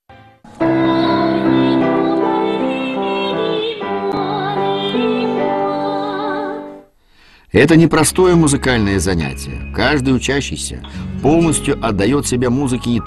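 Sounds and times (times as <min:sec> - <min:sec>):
woman singing with vibrato: 0:00.6 - 0:06.9.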